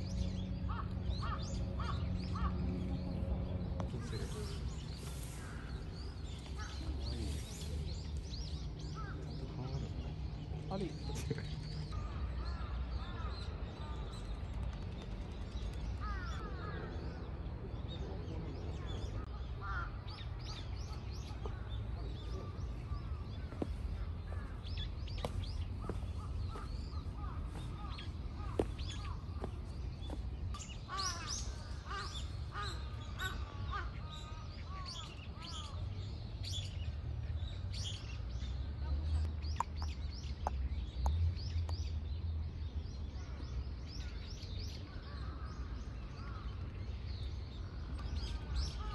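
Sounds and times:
small birds chirping: 0.0 - 48.9
crows cawing: 0.7 - 2.6, 19.3 - 20.1, 30.9 - 35.6.

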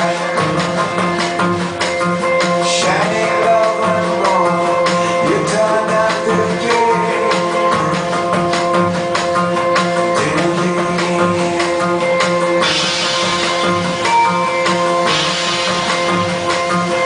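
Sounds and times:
drum beat: 0.0 - 17.0
electric guitar and synthesizer: 0.0 - 17.0.

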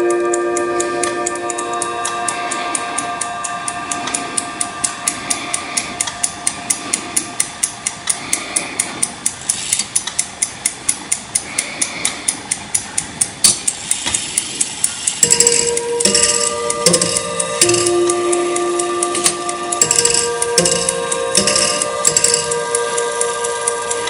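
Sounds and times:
chime rods ringing: 0.0 - 7.8, 15.1 - 24.0
clock movement ticking: 0.0 - 24.0.

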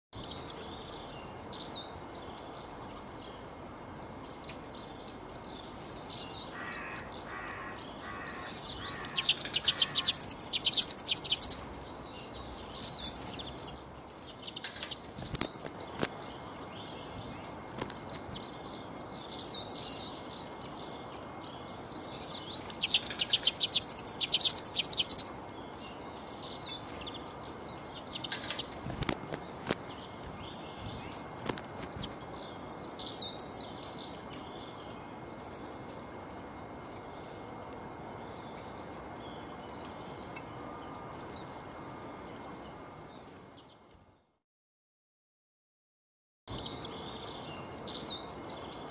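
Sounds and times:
background hiss: 0.2 - 43.8
songbirds chirping: 0.2 - 44.4, 46.5 - 48.9
fast rattling bird trills: 6.6 - 16.2, 22.6 - 25.4, 27.8 - 30.0.

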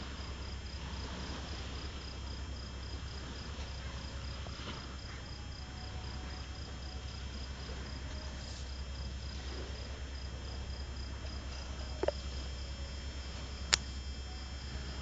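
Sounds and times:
cricket trilling: 0.0 - 15.0
low rumble and hiss: 0.0 - 15.0.

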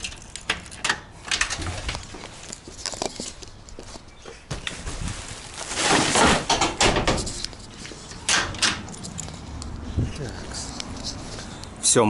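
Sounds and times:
rubbish bag rustling into bin: 4.5 - 7.4.

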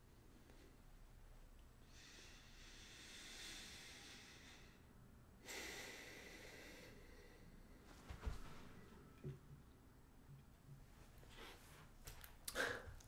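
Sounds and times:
person breathing softly: 1.8 - 8.0.

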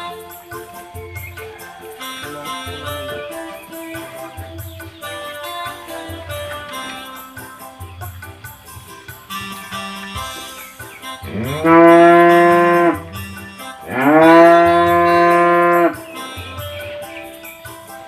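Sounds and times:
faint music: 0.0 - 18.0
cow mooing: 11.3 - 13.2, 13.8 - 17.0.

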